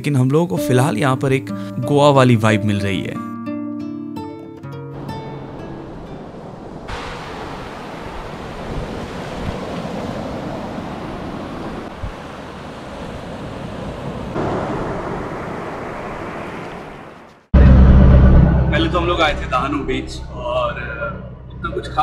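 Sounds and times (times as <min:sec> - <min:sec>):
small waves washing on beach: 0:05.0 - 0:17.5
wind on microphone: 0:05.4 - 0:17.4.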